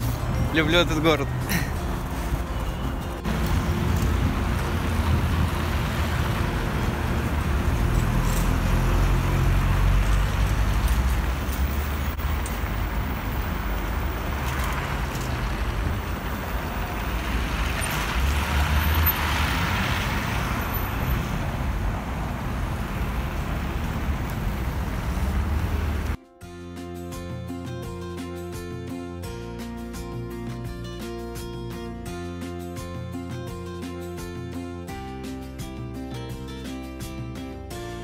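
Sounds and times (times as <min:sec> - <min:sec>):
vehicles passing on snowy road: 0:00.0 - 0:26.2
vehicle passing close: 0:03.2 - 0:26.2.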